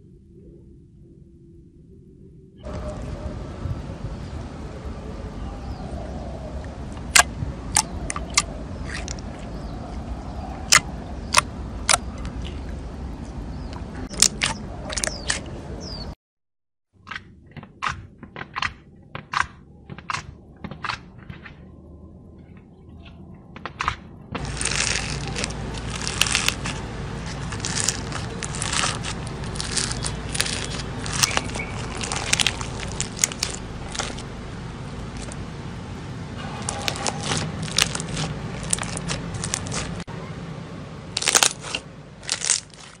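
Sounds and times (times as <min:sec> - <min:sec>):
slime crunching crackle: 0:06.9 - 0:12.7, 0:14.0 - 0:15.4, 0:24.4 - 0:35.4, 0:36.4 - 0:40.1, 0:41.1 - 0:43.0
slime clicking and popping: 0:24.4 - 0:34.2, 0:36.6 - 0:40.0, 0:41.2 - 0:43.0.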